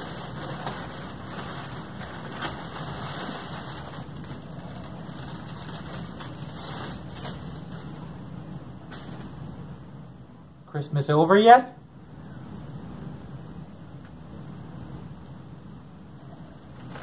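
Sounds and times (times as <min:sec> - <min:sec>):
wrapping paper rustling: 0:00.0 - 0:09.4, 0:16.8 - 0:17.0.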